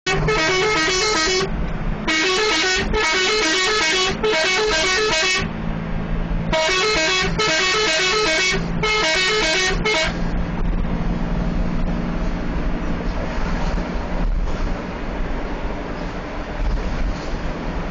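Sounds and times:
warbling multi-tone bus horn: 0:00.0 - 0:05.6, 0:06.4 - 0:10.3
engine hum: 0:00.0 - 0:17.9.

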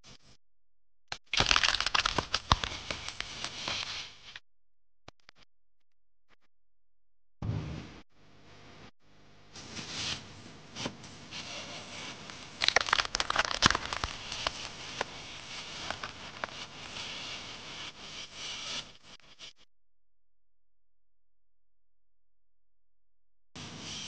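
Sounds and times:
rustling and scraping on a plate: 0:09.6 - 0:19.0.

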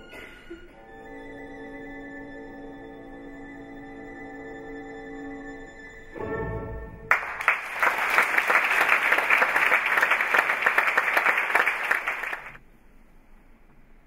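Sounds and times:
audience applauding: 0:07.1 - 0:12.6.

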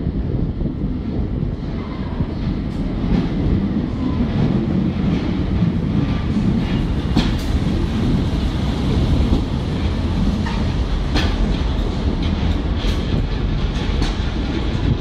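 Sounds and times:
train engine and wheels rumbling: 0:00.0 - 0:15.0
wheels clicking over rail joints: 0:04.4 - 0:15.0.

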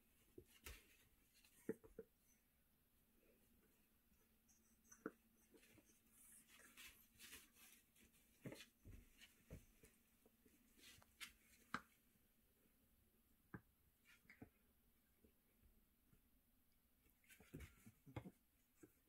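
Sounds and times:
puppy shuffling on paper pad: 0:05.6 - 0:10.0.

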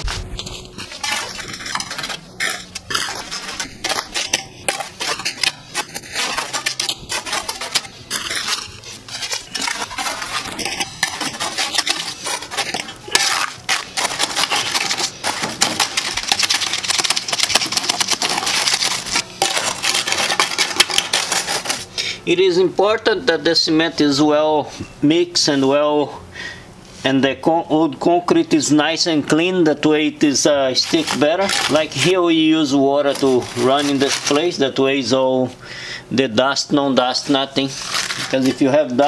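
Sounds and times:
shovel scraping and knocking concrete: 0:00.0 - 0:21.9, 0:28.9 - 0:35.3, 0:36.6 - 0:39.0.

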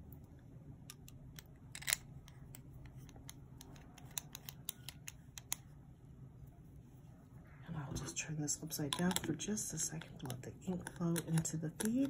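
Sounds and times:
plastic pen clicks and ticks: 0:00.9 - 0:05.6, 0:10.1 - 0:12.0.

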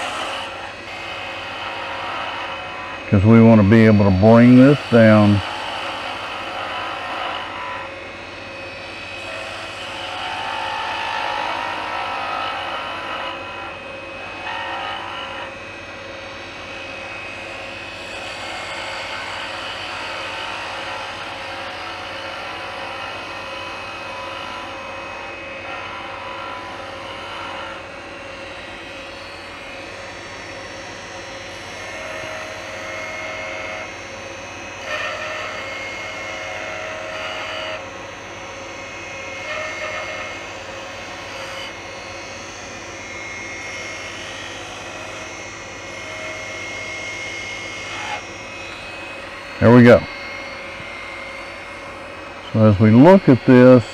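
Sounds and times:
wood lathe humming: 0:00.0 - 0:53.9
gouge hissing on spinning wood: 0:04.8 - 0:07.8, 0:14.4 - 0:15.4, 0:34.9 - 0:35.5, 0:39.5 - 0:40.3.

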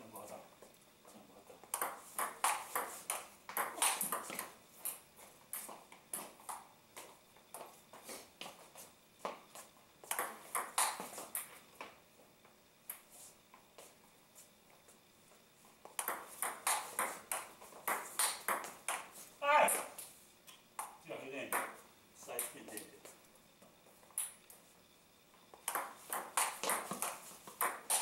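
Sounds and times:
ball bouncing on table: 0:01.7 - 0:04.4, 0:10.1 - 0:11.1, 0:16.0 - 0:19.1, 0:21.5 - 0:21.8, 0:25.6 - 0:28.0
table tennis ball hits: 0:01.7 - 0:04.5, 0:10.1 - 0:11.5, 0:16.0 - 0:20.0, 0:20.8 - 0:21.8, 0:25.6 - 0:28.0.

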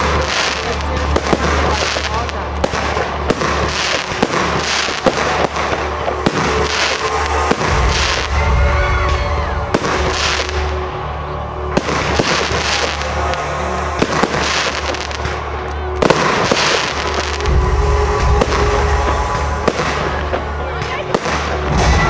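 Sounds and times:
fireworks bangs: 0:00.0 - 0:22.0
fireworks hissing crackle: 0:00.0 - 0:22.0.

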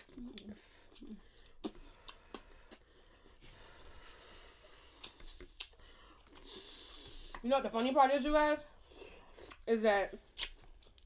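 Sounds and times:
wet eating smacks: 0:00.0 - 0:03.0, 0:09.3 - 0:11.0.

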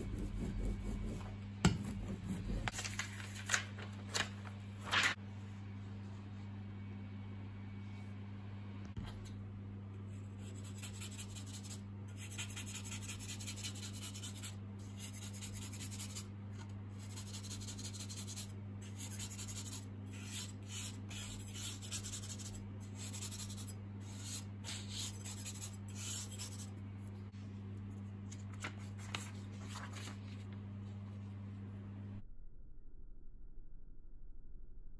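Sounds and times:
scratchy rubbing on paper: 0:00.0 - 0:02.8, 0:10.2 - 0:16.3, 0:17.0 - 0:26.7
low hum: 0:00.0 - 0:14.0, 0:17.9 - 0:34.9.

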